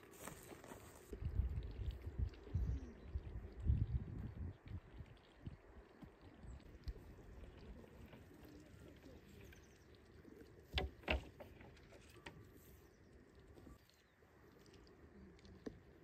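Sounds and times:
faint scattered ticks: 11.4s - 16.0s.

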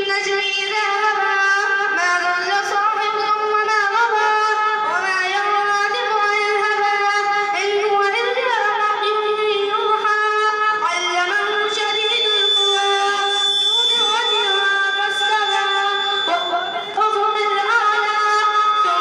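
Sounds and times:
girl chanting recitation: 0.0s - 12.2s.

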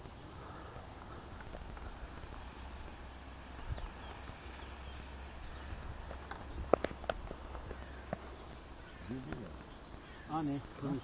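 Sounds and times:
wind rumble on microphone: 3.5s - 4.5s.

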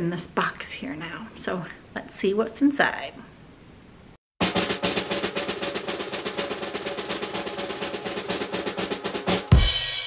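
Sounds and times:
cymbal crash: 4.4s - 10.0s
drum roll: 4.4s - 10.0s.

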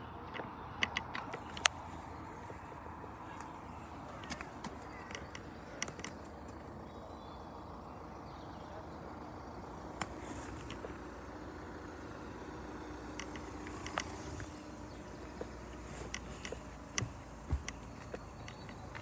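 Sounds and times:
light clicks and taps: 0.2s - 2.7s, 3.3s - 6.6s, 13.1s - 14.6s, 15.2s - 19.0s.

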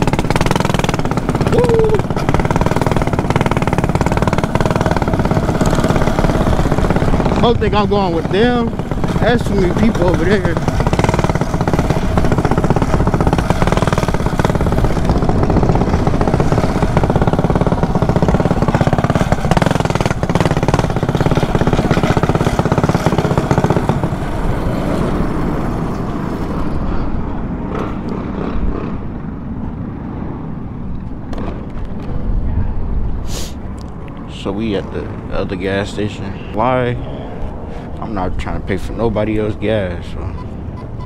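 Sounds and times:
mini bike engine running: 0.0s - 29.2s.

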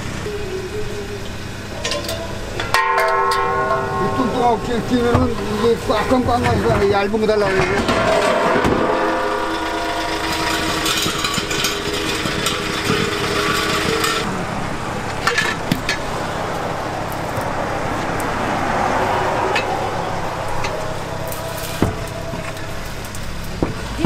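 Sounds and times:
vehicle engine running: 0.0s - 24.0s
sharp metal knocks: 2.6s - 6.9s, 7.5s - 14.3s, 19.4s - 23.9s.

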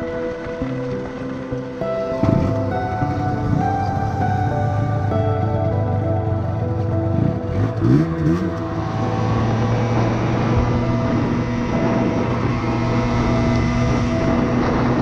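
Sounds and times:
wind: 0.0s - 15.0s
two-stroke motorcycle engine revving: 6.4s - 15.0s.

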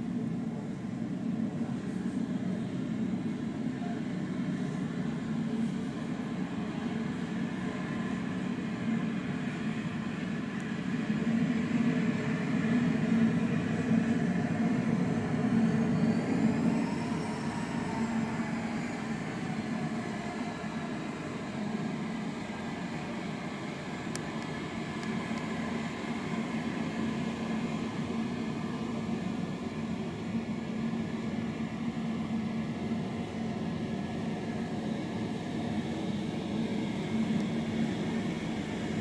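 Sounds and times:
jet engine rumble: 0.0s - 39.0s
turbine whine: 0.0s - 39.0s.

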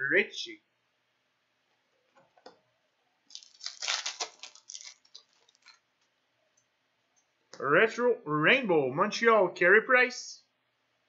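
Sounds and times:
foil pack crinkling: 3.3s - 5.8s.

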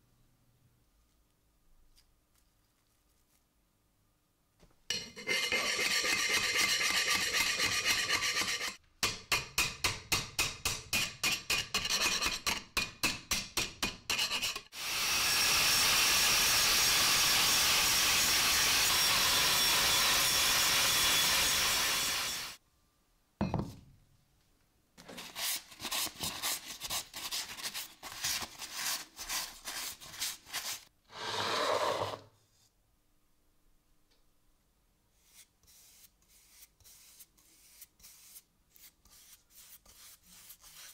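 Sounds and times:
angle grinder on steel: 4.9s - 8.8s, 14.7s - 22.6s
hand file scraping steel: 4.9s - 8.8s, 10.4s - 12.8s, 13.7s - 14.8s, 35.2s - 40.9s.

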